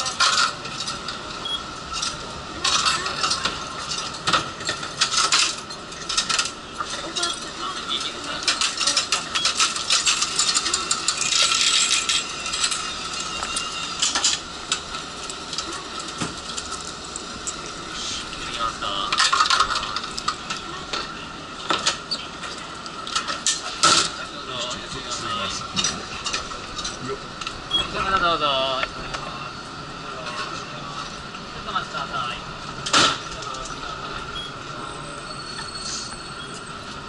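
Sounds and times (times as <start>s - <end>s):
coin mechanism clatter: 0.0s - 1.2s, 1.9s - 17.6s, 18.9s - 20.4s
coins clinking into fare box: 0.0s - 14.4s
steady high hum: 0.0s - 37.0s.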